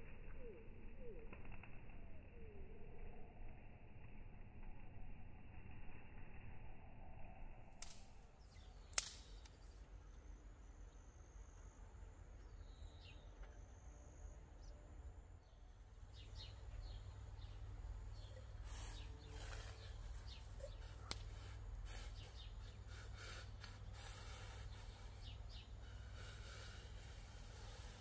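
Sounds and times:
faint bird chirps: 8.3 - 28.0
sharp click: 8.8 - 9.6.

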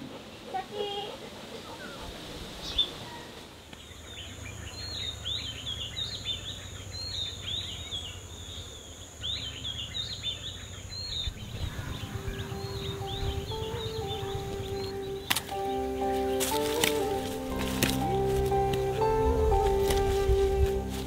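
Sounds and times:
birds chirping: 0.0 - 21.0
low rumble: 11.3 - 16.5
high-pitched insect drone: 11.4 - 21.0
music: 11.7 - 21.0.

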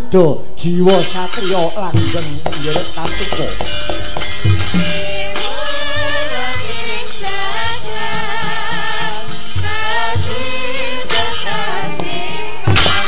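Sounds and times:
gamelan ensemble: 0.9 - 7.5, 8.1 - 13.0
person singing ornamented: 4.7 - 13.0.

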